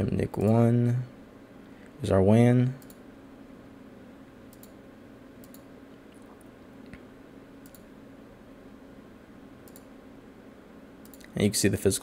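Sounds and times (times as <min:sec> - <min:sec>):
low steady hum: 0:00.0 - 0:12.0
faint computer mouse clicks: 0:02.8 - 0:03.0, 0:04.5 - 0:04.8, 0:05.4 - 0:05.7, 0:07.6 - 0:07.9, 0:09.6 - 0:09.9, 0:11.0 - 0:11.4.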